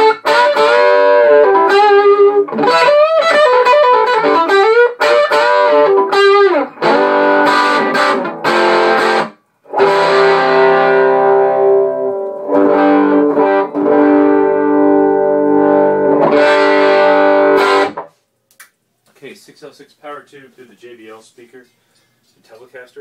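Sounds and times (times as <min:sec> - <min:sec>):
electric guitar chords strummed: 0:00.0 - 0:18.1.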